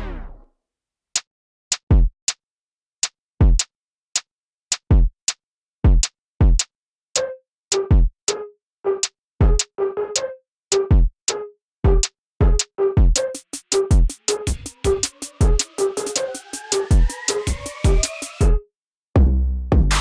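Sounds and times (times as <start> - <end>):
hip-hop drum-machine beat: 3.4 - 3.7, 4.7 - 8.4, 9.0 - 18.6.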